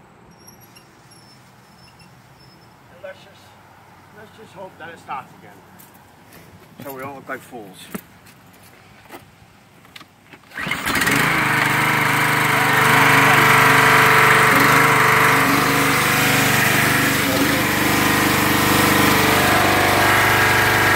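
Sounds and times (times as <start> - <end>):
small gas engine starting and running: 10.4 - 20.9.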